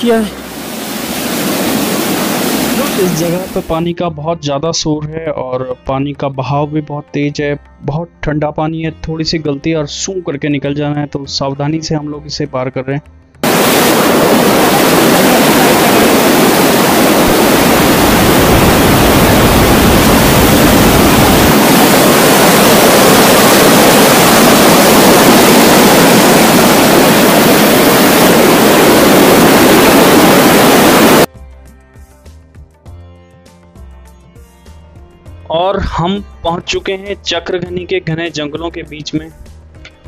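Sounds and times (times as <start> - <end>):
mountain stream roaring: 0.0 - 3.7, 13.4 - 31.3
quiet background music: 3.0 - 13.2, 34.7 - 40.0.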